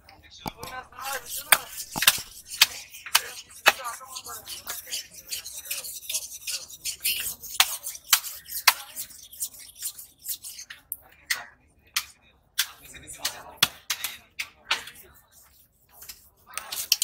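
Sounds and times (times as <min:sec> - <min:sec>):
knife scraping fish scales: 0:00.5 - 0:10.8, 0:14.8 - 0:17.0.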